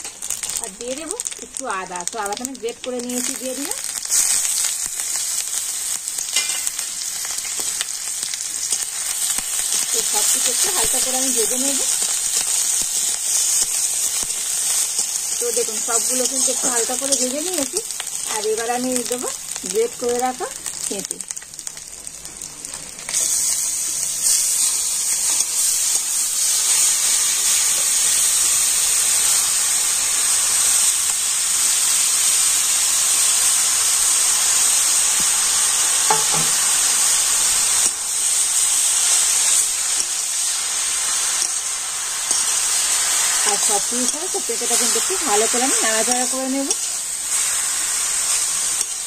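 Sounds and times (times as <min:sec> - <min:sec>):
food sizzling in hot oil: 0:00.0 - 0:49.0
spatula stirring in a pan: 0:36.1 - 0:36.8.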